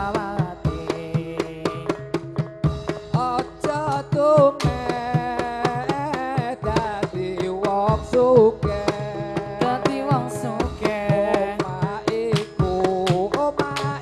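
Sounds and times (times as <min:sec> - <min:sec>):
hand drum strokes: 0:00.0 - 0:14.0.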